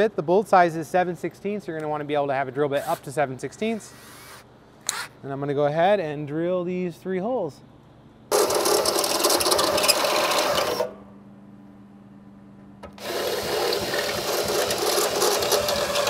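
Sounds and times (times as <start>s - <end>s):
cordless drill boring through metal: 8.3s - 10.9s, 13.0s - 16.0s.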